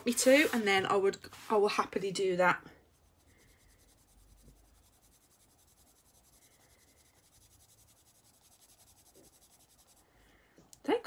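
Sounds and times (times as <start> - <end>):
pencil scratching on paper: 2.6 - 10.0.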